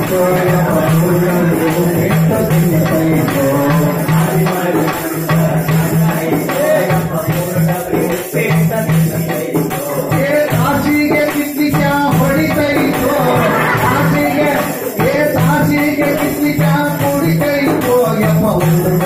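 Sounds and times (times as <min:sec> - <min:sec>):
hand percussion: 0:00.0 - 0:19.0
man singing into a microphone: 0:00.0 - 0:19.0
tambourine shaken and struck: 0:00.0 - 0:19.0.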